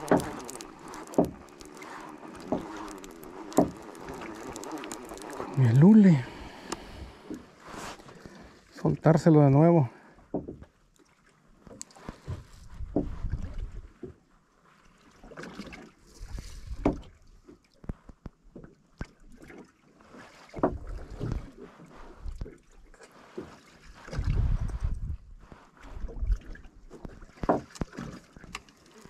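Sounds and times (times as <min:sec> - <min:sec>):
water against hull: 0:00.0 - 0:29.0
wind gusting on microphone: 0:24.1 - 0:25.4.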